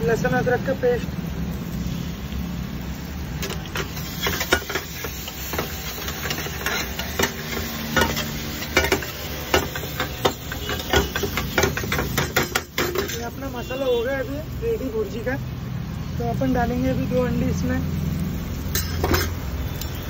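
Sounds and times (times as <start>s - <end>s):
food sizzling in hot oil: 0.0s - 20.0s
spatula scraping frying pan: 3.4s - 13.4s, 18.7s - 19.5s.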